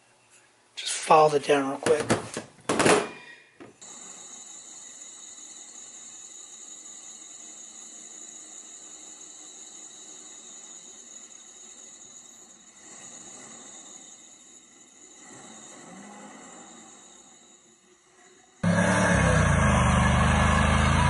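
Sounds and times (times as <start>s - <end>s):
steady high-pitched hiss: 3.4s - 18.6s.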